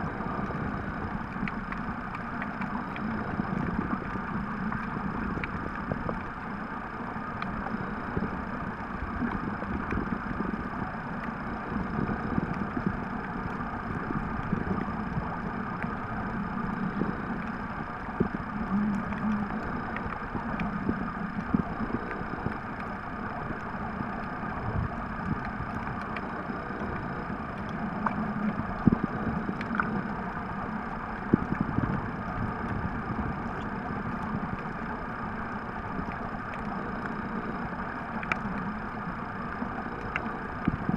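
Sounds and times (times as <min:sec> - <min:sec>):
small underwater clicks: 0:00.0 - 0:40.9
underwater rumbling: 0:00.0 - 0:40.9.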